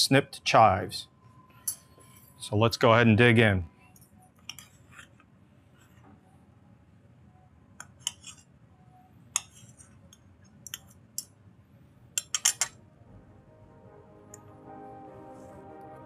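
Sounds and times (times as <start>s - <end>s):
cutlery clinking on a ceramic plate: 12.2s - 12.8s.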